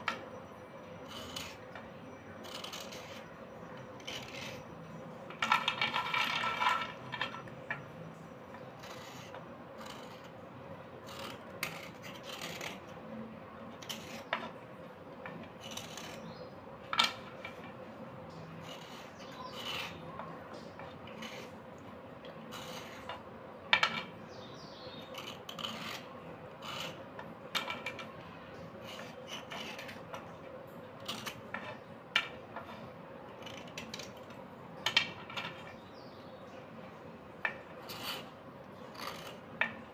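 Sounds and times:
knife scraping slate pencil: 0.1 - 10.4, 11.0 - 14.6, 15.2 - 17.7, 18.3 - 21.6, 22.2 - 23.2, 23.8 - 30.3, 31.0 - 34.4, 37.5 - 39.9
pencils clattering in clay bowl: 2.4 - 4.7, 5.3 - 7.8.

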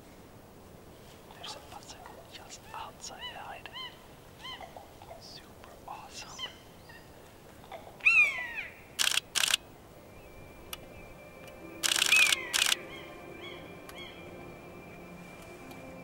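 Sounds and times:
camera shutter bursts: 9.0 - 9.6, 11.8 - 12.8
bird descending call: 10.0 - 15.7.

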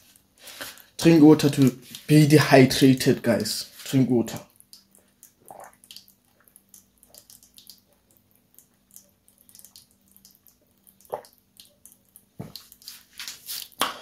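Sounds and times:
faint steady hum: 0.0 - 14.0
person gulping water: 4.7 - 11.8.

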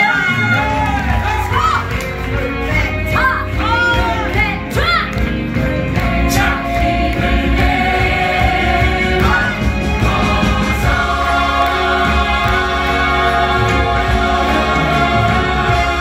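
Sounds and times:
instrumental accompaniment: 0.4 - 16.0
cast singing as an ensemble: 5.6 - 16.0.

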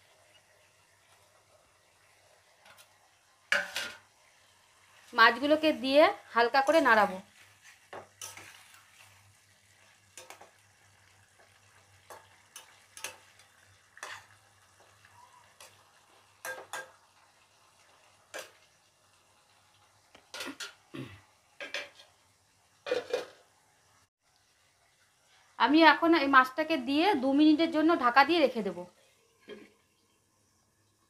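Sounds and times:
metal spoon scraping a pan: 2.6 - 4.1, 6.6 - 10.6, 11.4 - 14.4, 15.5 - 17.0, 18.3 - 18.6, 21.6 - 22.2, 22.9 - 23.5.

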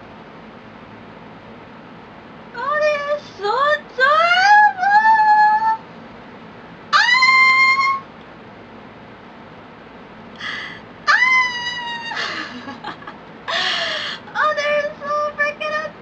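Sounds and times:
woman squealing excitedly: 7.0 - 8.0, 11.1 - 14.1
breathy bursts: 10.4 - 10.8, 13.5 - 14.3.

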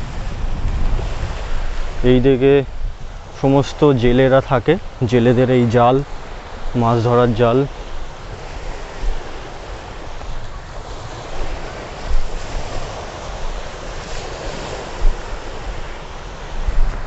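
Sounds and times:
wind rushing: 0.0 - 3.2, 8.6 - 17.0
sea surf: 0.0 - 17.0
wind buffeting microphone: 0.0 - 17.0.

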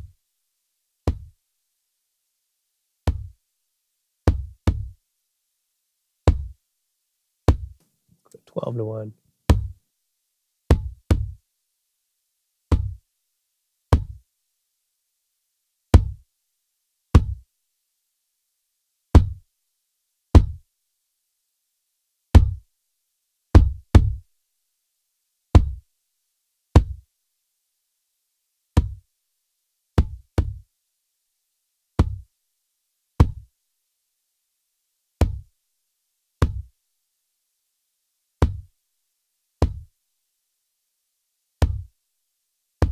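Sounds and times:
hard kick drum hits: 22.4 - 22.6.

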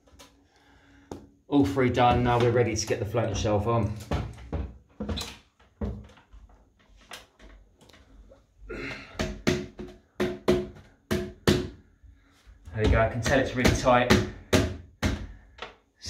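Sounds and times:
wooden shelf knocking on metal rods: 9.0 - 11.8.

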